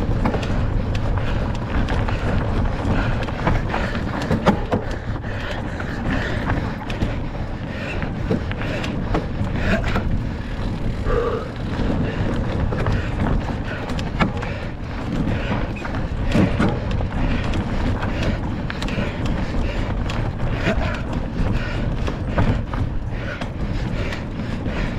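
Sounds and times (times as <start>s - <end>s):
bike rattling clicks and knocks: 0.0s - 24.9s
wind rumble on microphone: 0.0s - 24.9s.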